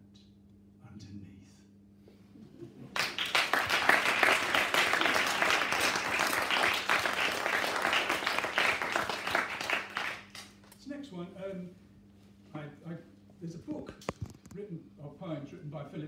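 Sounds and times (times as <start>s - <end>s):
small audience applauding: 2.9s - 10.8s.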